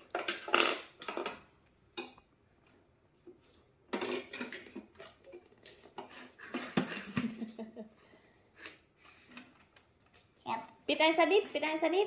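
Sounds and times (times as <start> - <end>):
dishes and cutlery clattering: 3.9 - 5.2.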